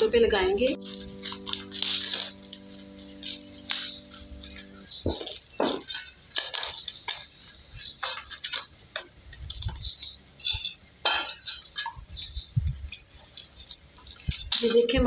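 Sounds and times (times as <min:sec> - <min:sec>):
hands kneading dough: 0:05.1 - 0:15.0.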